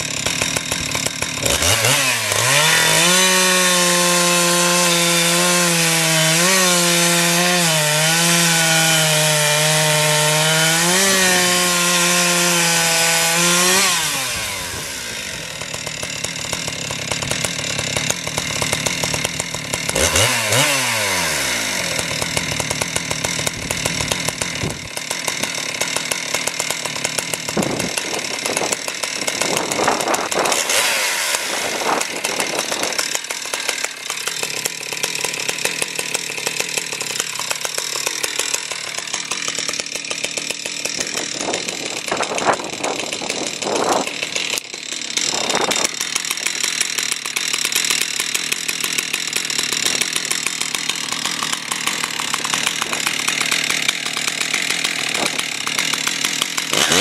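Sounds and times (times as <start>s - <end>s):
chainsaw revving: 0.0s - 57.0s.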